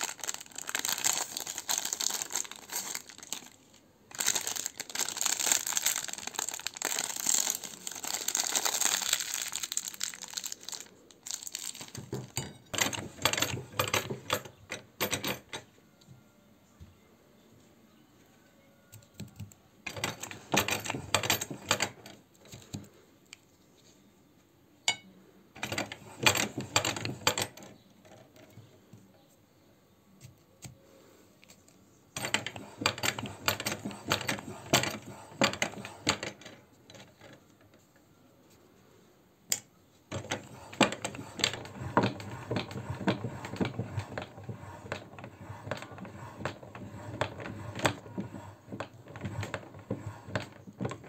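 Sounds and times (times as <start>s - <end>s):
hand-cranked meat grinder rattling: 40.1s - 51.0s.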